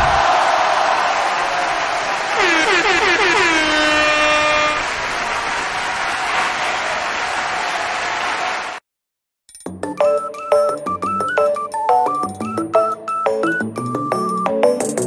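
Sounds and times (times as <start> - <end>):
vehicle horn: 2.3 - 4.9.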